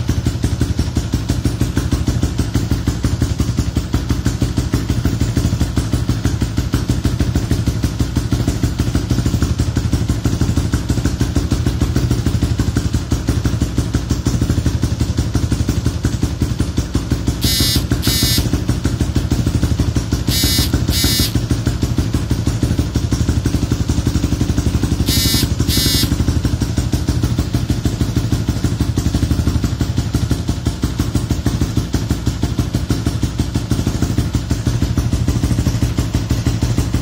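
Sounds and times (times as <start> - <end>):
scooter engine idling: 0.0 - 37.0
brief high chirps: 17.4 - 18.5, 20.3 - 21.4, 25.1 - 26.2.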